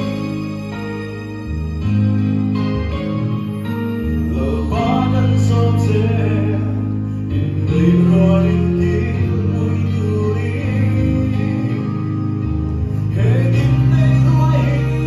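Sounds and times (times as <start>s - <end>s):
backing music with bass chords: 0.0s - 15.0s
man singing into a microphone: 4.2s - 15.0s.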